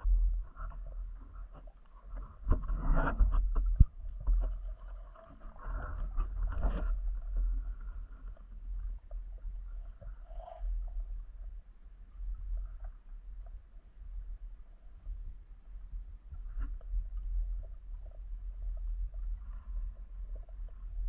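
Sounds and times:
knocks and scrapes: 0.0s - 8.4s
underwater rumble: 0.0s - 21.0s.

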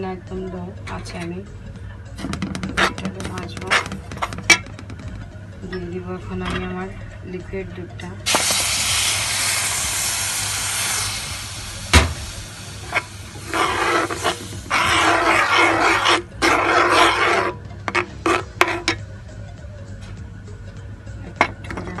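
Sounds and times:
spoon scraping pan: 2.2s - 5.1s, 12.9s - 19.0s.

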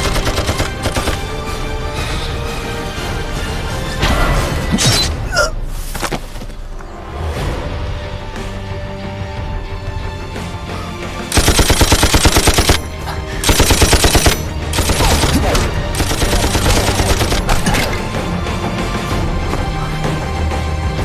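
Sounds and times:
dramatic film music: 0.0s - 21.0s
machine-gun fire: 11.3s - 12.8s.

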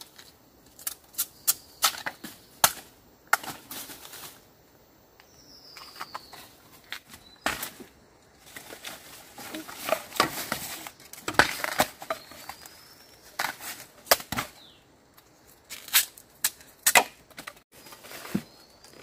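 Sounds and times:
dry leaves rustling: 3.4s - 4.5s, 6.3s - 14.7s
bamboo shoots snapping: 15.7s - 17.6s.

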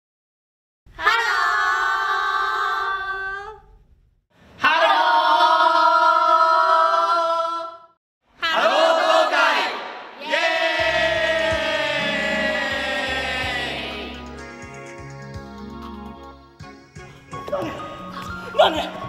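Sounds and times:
women singing long call: 1.0s - 3.6s
group singing long call: 4.6s - 14.3s.

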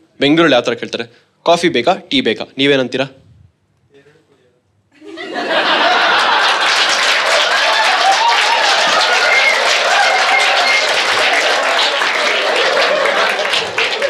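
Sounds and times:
audience applauding: 5.5s - 14.0s
cheering voices: 5.6s - 14.0s.

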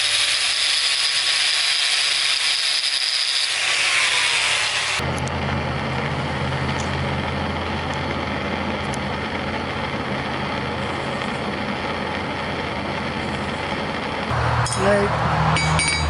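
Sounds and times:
torch flame rushing: 3.6s - 15.5s
steady low hum: 5.0s - 16.0s.

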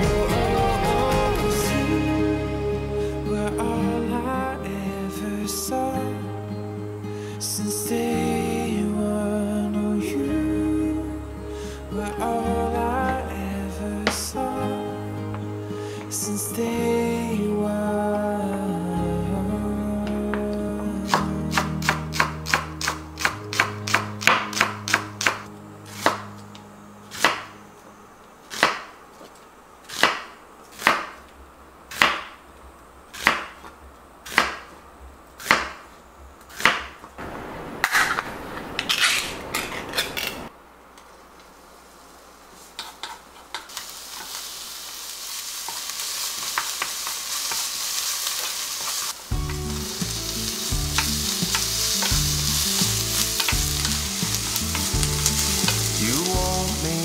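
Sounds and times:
knife chopping on wooden board: 28.6s - 28.9s
onion sizzling in a pan: 41.8s - 57.0s.

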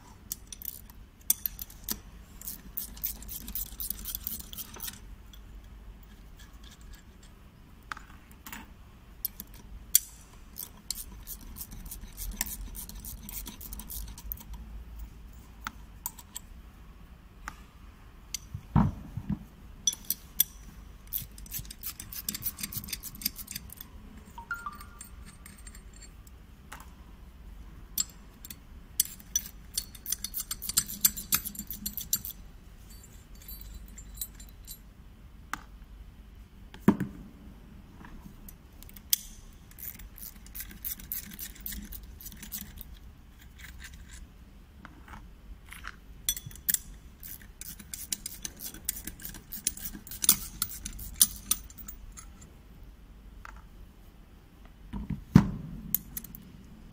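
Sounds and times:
metallic clicks of bolts and wrench: 0.3s - 5.8s, 9.2s - 14.6s, 15.6s - 16.5s, 18.3s - 18.5s, 19.8s - 26.4s, 28.0s - 34.8s, 38.5s - 44.2s, 45.7s - 52.4s, 55.9s - 56.5s.

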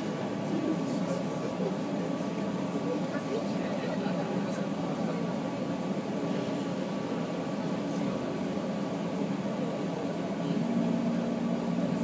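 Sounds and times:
train cabin noise: 0.0s - 12.0s
low hum: 10.4s - 12.0s.

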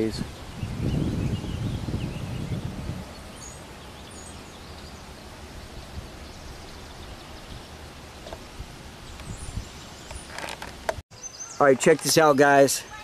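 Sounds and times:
wind rumbling on microphone: 0.0s - 11.0s
faint high bird chirps: 11.1s - 13.0s.

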